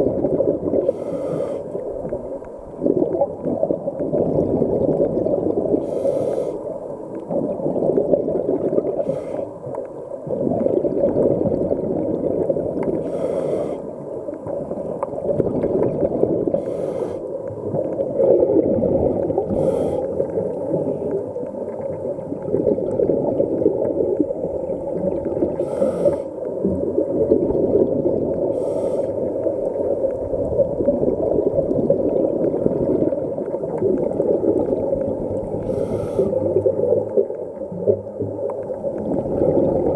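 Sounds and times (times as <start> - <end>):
underwater exhaled bubbles rumbling: 0.0 - 39.9
scuba regulator hiss: 0.9 - 1.8, 5.8 - 6.6, 9.0 - 9.5, 13.0 - 13.9, 16.6 - 17.3, 19.5 - 20.2, 25.6 - 26.3, 28.5 - 29.3, 35.6 - 36.4.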